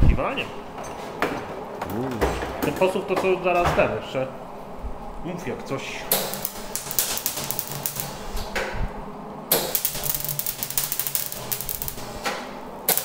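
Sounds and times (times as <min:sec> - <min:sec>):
mig welder crackling: 0:06.1 - 0:08.7, 0:09.5 - 0:13.0.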